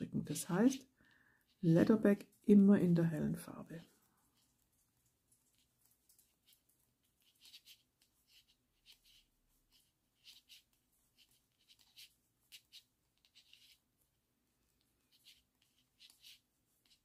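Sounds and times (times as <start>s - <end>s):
knitting needles clicking: 4.7s - 7.5s.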